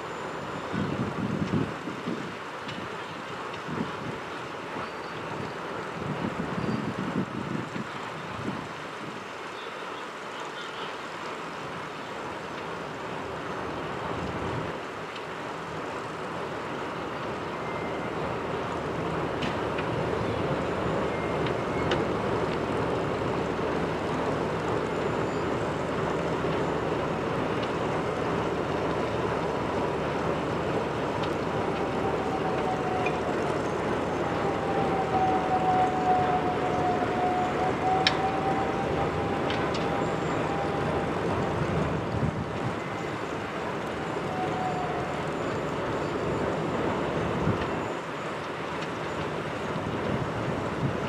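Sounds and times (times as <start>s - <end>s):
snow-removal train rushing: 11.2s - 51.0s
wavering whine: 19.7s - 51.0s.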